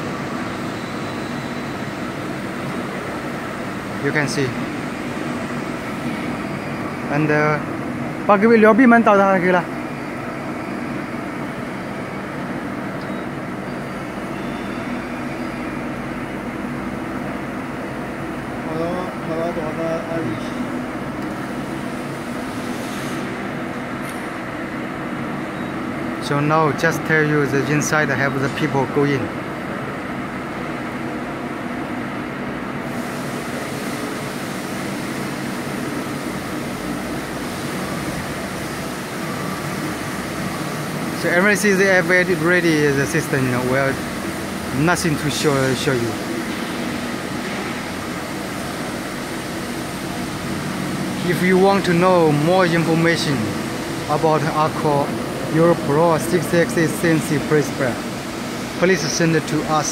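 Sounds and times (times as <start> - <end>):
hydraulic machine hum and hiss: 0.0 - 59.9.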